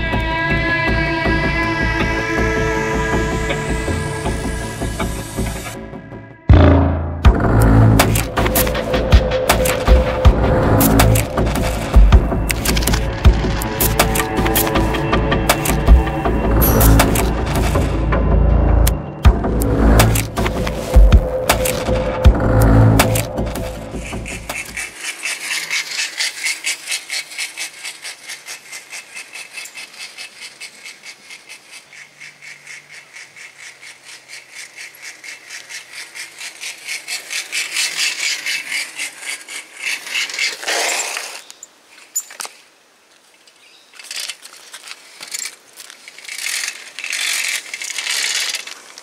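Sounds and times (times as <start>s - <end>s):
bicycle rattling and clicking: 8.0s - 18.0s, 20.0s - 42.6s, 43.9s - 49.0s
irregular clatters: 23.0s - 41.4s, 43.9s - 49.0s.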